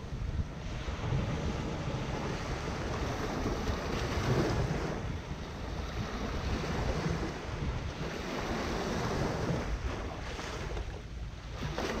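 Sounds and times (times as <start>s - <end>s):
small waves breaking on shore: 0.0s - 12.0s
wind rumbling on microphone: 0.0s - 12.0s.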